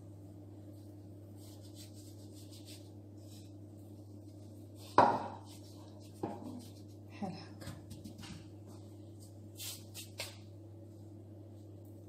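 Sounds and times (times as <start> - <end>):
fingers rubbing powder on dough: 0.7 - 7.1.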